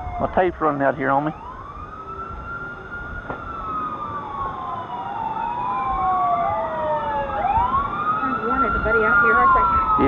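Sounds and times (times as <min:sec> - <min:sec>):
warning sirens wailing: 0:00.0 - 0:10.0.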